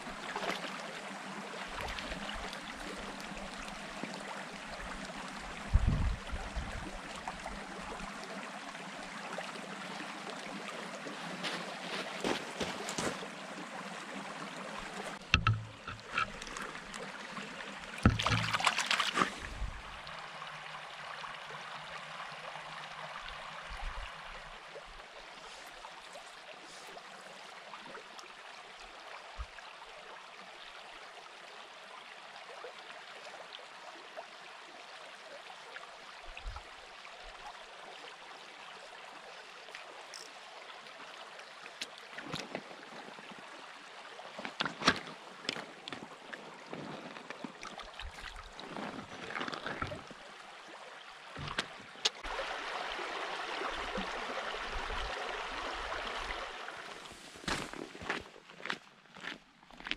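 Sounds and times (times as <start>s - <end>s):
stream running over stones: 0.0s - 59.9s
knocks and splashing: 15.2s - 17.0s, 18.0s - 19.8s, 51.4s - 52.2s.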